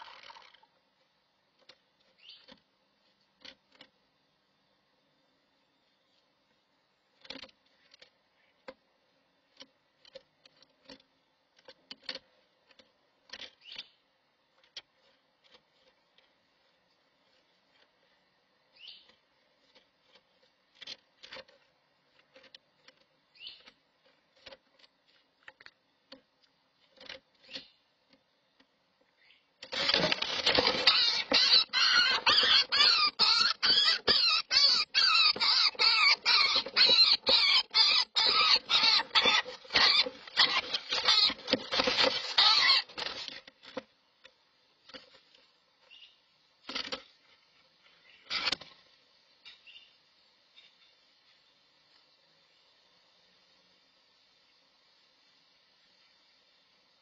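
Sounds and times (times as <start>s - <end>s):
wings flapping and claws scrabbling: 29.6s - 43.9s.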